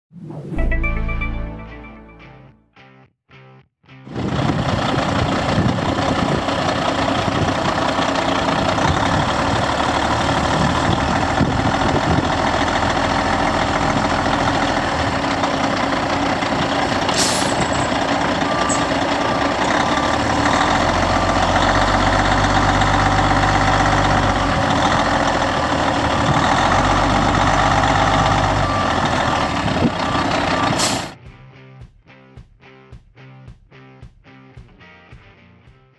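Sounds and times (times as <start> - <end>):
diesel truck engine running: 4.1 - 31.2
beeps: 17.7 - 20.1.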